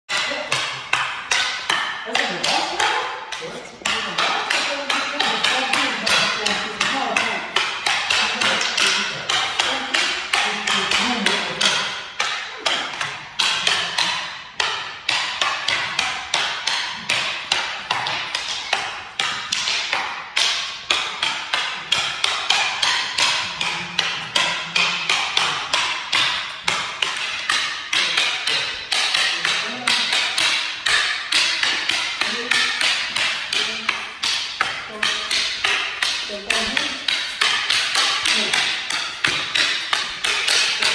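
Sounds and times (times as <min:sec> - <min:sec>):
wooden sticks clacking: 0:00.1 - 0:40.9.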